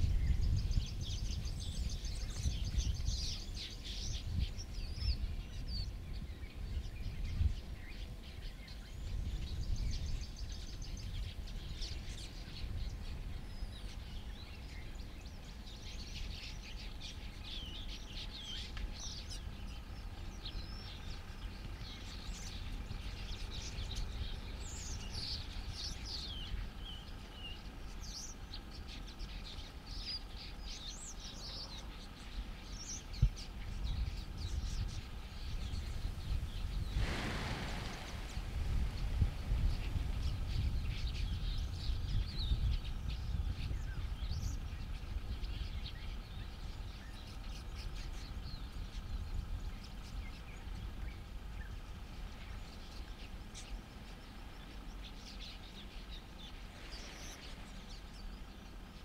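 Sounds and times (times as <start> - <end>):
birds chirping: 0.0 - 59.0
low rumble: 32.2 - 53.4.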